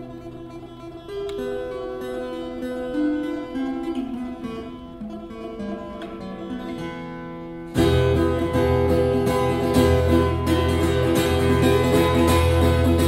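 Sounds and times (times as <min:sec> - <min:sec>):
acoustic guitar fingerpicking: 0:00.0 - 0:13.0
loud guitar chords: 0:07.4 - 0:13.0.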